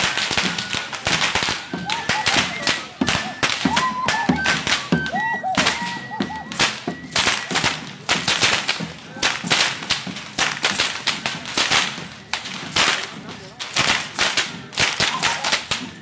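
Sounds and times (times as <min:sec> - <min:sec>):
flute melody: 0:00.0 - 0:16.0
whips cracking: 0:06.5 - 0:16.0.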